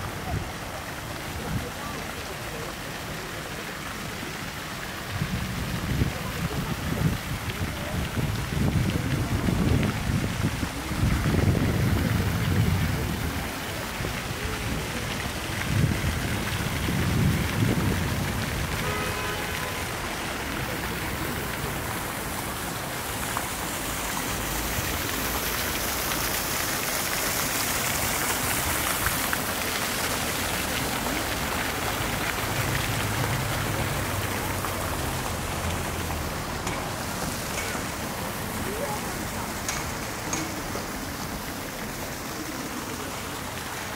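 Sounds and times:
fountain water splashing: 0.0 - 43.9
wind buffeting microphone: 5.1 - 18.9.

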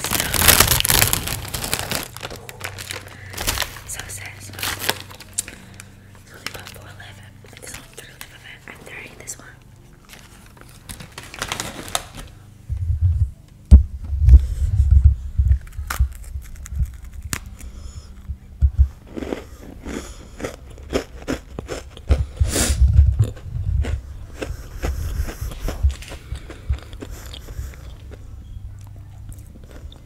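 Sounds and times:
microphone handling bumps: 12.7 - 17.1
chewing and mouth noises: 19.0 - 30.0.

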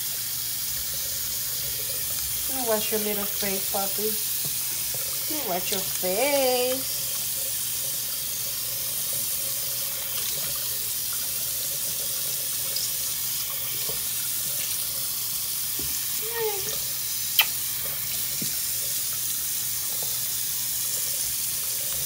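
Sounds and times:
tap water running into sink: 0.0 - 22.0
water splashing: 1.2 - 18.9
sharp click: 17.4 - 17.6.

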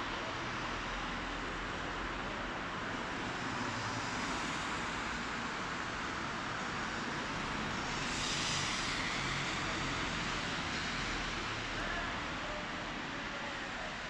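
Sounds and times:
road traffic on wet street: 0.0 - 14.0
passing car tyre hiss: 3.2 - 13.0.

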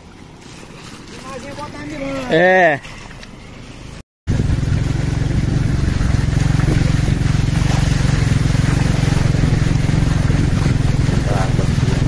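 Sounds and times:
engine humming steadily: 0.0 - 12.0.

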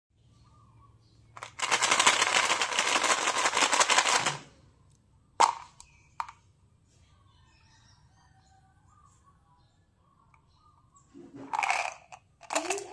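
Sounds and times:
pellets rattling in plastic bottle: 1.4 - 4.5, 11.5 - 12.9.

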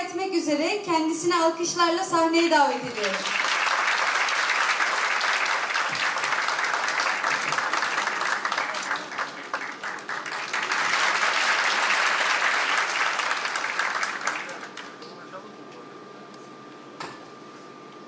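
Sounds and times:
audience applauding: 2.9 - 15.2.

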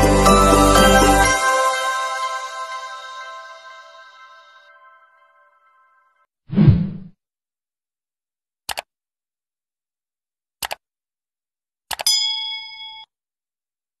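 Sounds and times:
mouse clicks: 8.7 - 8.9, 10.6 - 10.8
notification bell ding: 12.1 - 13.1.

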